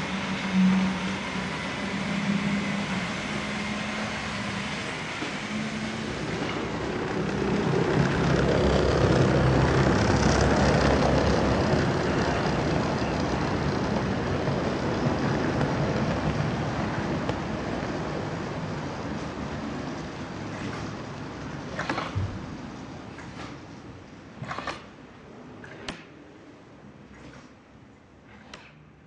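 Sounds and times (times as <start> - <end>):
model train running on track: 0.0 - 21.8
low hum: 0.0 - 28.3.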